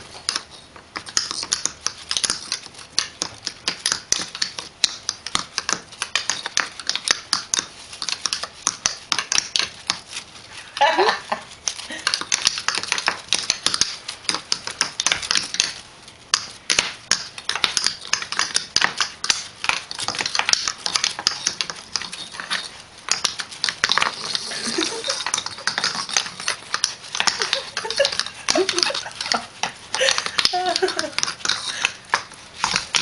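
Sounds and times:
kitten claws scrabbling on wood: 11.6s - 33.0s.

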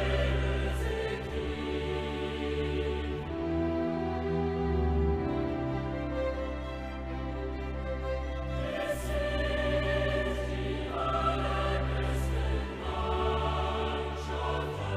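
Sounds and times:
choir singing held chords: 0.0s - 6.2s, 8.0s - 14.9s
orchestral accompaniment: 0.0s - 14.9s.

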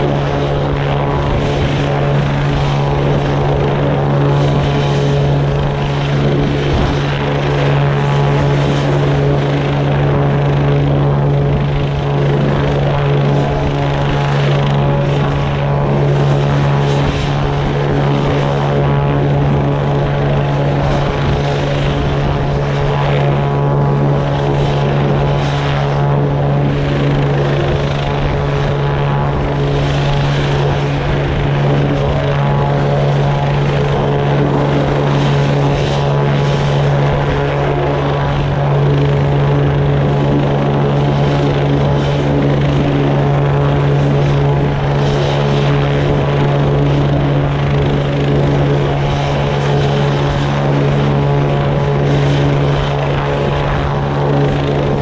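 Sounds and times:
helicopter engine drone: 0.0s - 55.0s.

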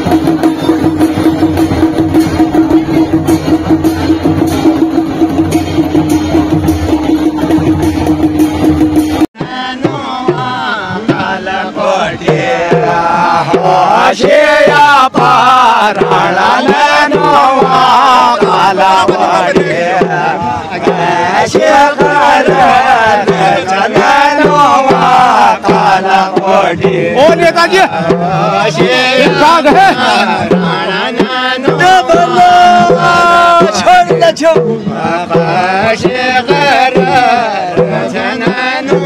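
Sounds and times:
hand drum beat: 0.0s - 39.0s
men singing a folk song: 9.3s - 39.0s.

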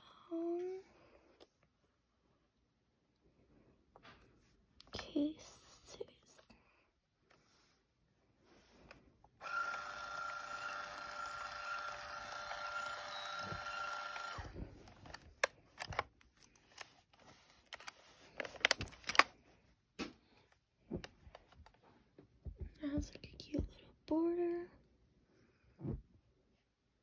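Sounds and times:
label maker motor whining: 9.4s - 14.6s.

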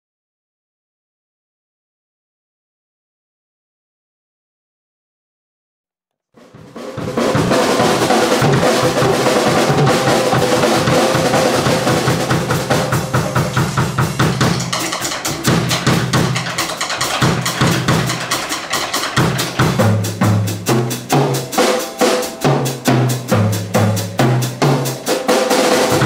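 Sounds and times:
drum kit playing: 6.4s - 26.0s.

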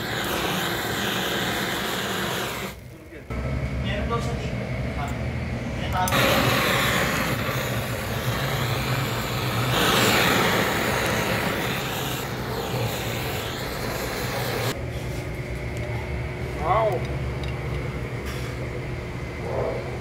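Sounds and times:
butane torch hissing flame: 0.0s - 3.4s, 5.6s - 15.3s.

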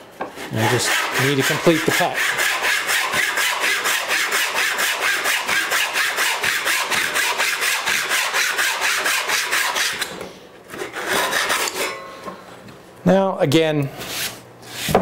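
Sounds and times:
handsaw cutting wood: 0.4s - 10.1s, 10.7s - 11.8s.

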